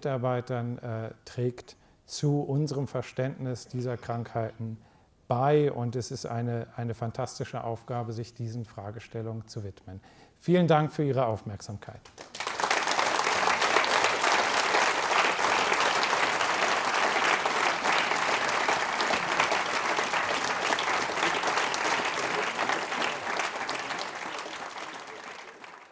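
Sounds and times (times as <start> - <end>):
audience applauding: 12.1 - 25.9.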